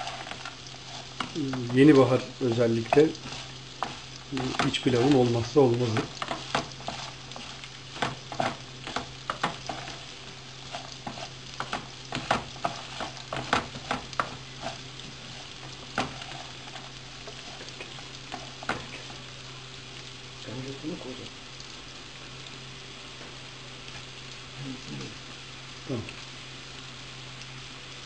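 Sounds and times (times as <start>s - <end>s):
wooden spatula scraping frying pan: 0.0s - 19.3s
rice sizzling in oil: 0.0s - 28.0s.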